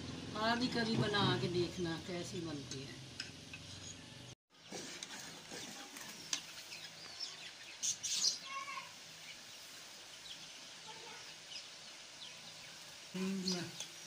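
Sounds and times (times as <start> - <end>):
birds chirping: 0.6 - 14.0.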